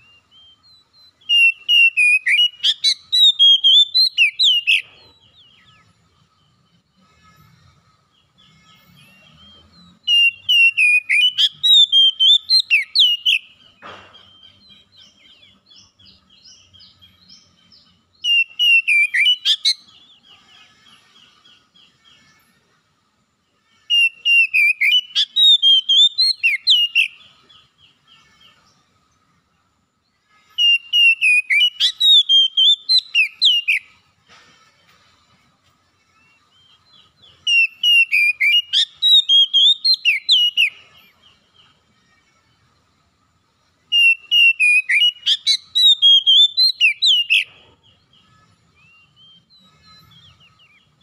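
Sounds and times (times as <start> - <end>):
bird singing whistled phrases: 0.0 - 4.8, 9.2 - 13.6, 18.2 - 20.0, 23.9 - 27.2, 30.6 - 33.9, 36.6 - 40.8, 43.9 - 47.5
bird chirps: 0.0 - 51.0.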